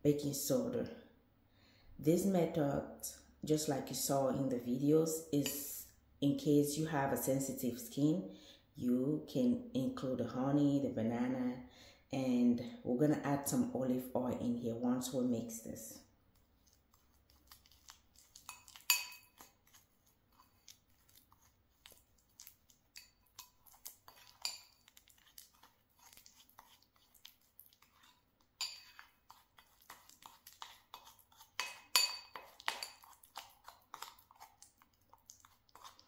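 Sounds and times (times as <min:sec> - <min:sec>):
metal spoon scraping ceramic bowl: 0:16.6 - 0:34.8, 0:35.4 - 0:36.0.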